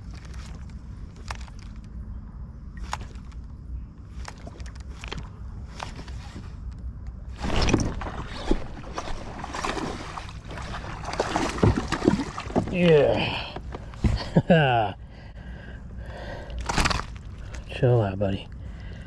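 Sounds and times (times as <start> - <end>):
handling noise rumble: 7.2 - 14.9.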